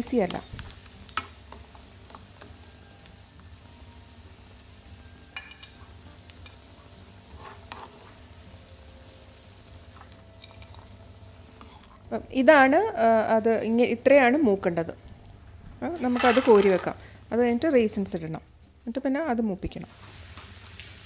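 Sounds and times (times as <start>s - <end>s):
nuts sizzling in a pan: 0.0s - 13.2s, 15.9s - 17.3s, 19.7s - 21.0s
spatula scraping and tapping: 7.3s - 8.2s.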